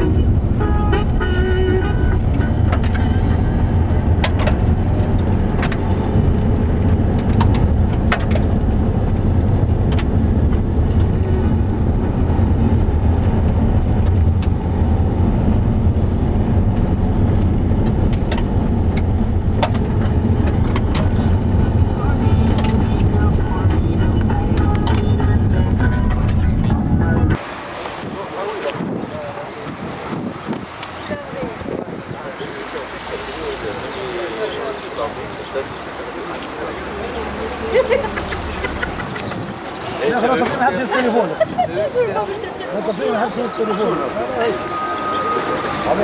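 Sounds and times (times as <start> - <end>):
car engine and tyres rumbling: 0.0 - 46.0
sharp clicks and rattles: 3.8 - 11.5, 15.5 - 26.6.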